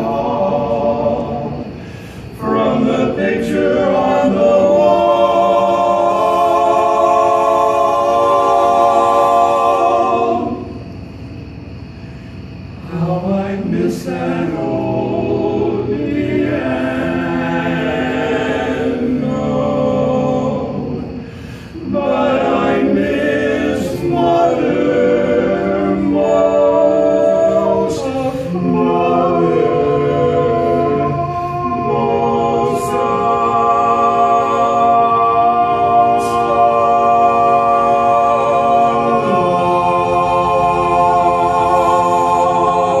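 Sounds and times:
men singing a cappella harmony: 0.0s - 11.0s, 12.8s - 43.0s
singer breath: 1.6s - 2.4s, 10.9s - 12.6s, 21.2s - 21.8s, 31.2s - 31.7s.

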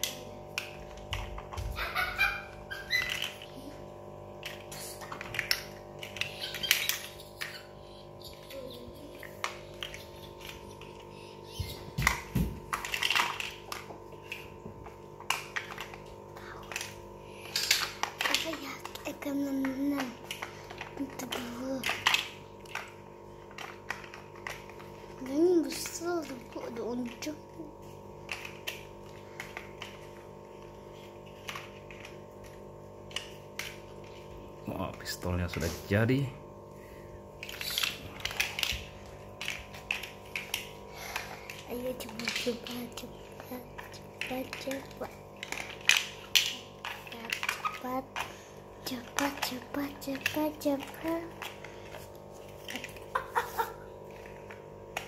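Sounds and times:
steady low hum: 0.0s - 55.0s
plastic toy bricks clicking: 16.6s - 27.4s, 39.4s - 52.0s.

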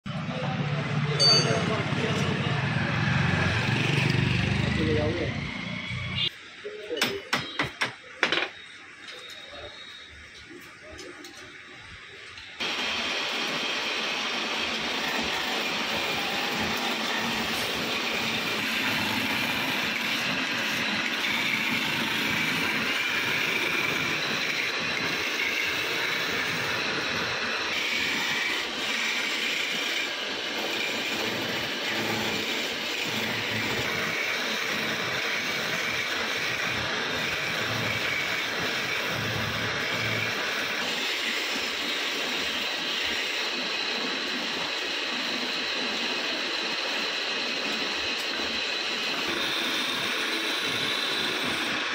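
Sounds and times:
wood lathe running: 12.6s - 51.9s.

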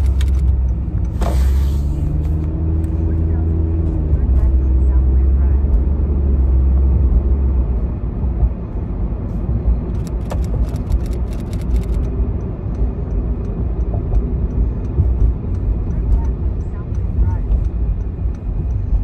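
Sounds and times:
rapid clattering clicks: 0.0s - 0.6s, 9.9s - 12.1s
car road and engine rumble: 0.0s - 19.0s.

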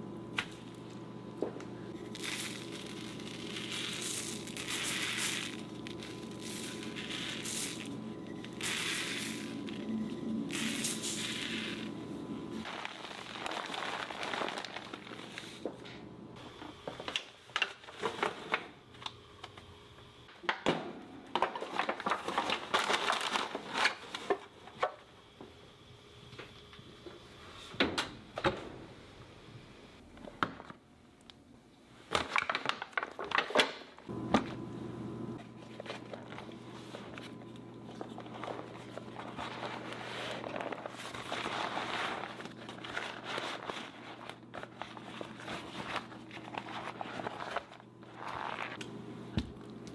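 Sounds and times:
foil pan crinkling: 12.6s - 15.8s, 21.4s - 24.4s, 35.6s - 48.8s
paper wrapping rustling: 12.6s - 16.0s, 21.4s - 24.5s, 35.4s - 48.8s.

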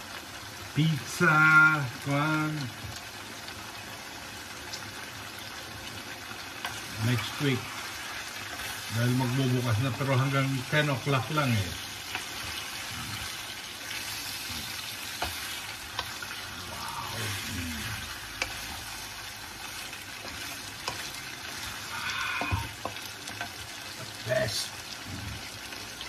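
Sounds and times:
food sizzling in a frying pan: 0.0s - 26.0s.

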